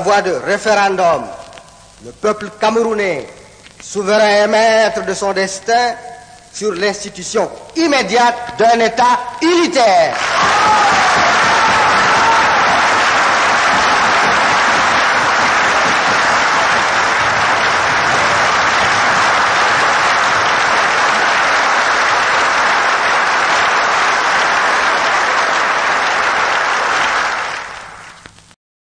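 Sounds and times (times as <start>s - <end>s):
crowd applauding: 10.1s - 28.2s.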